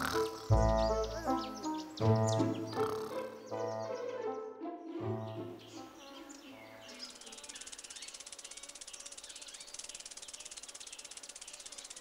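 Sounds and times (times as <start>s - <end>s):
music: 0.0s - 7.2s
cricket-like insect trill: 7.1s - 12.0s.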